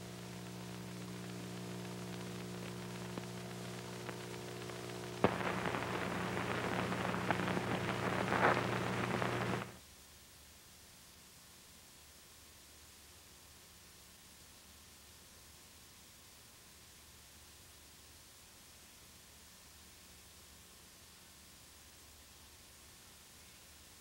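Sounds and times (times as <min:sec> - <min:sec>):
crackling static: 0:00.0 - 0:09.8
steady hum: 0:00.0 - 0:09.8
hiss: 0:05.2 - 0:09.8.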